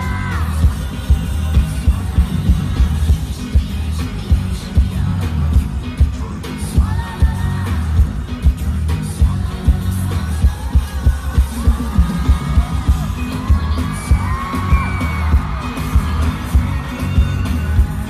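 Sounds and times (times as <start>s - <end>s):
person singing: 0.0s - 18.0s
pop dance music with heavy bass: 0.0s - 18.0s.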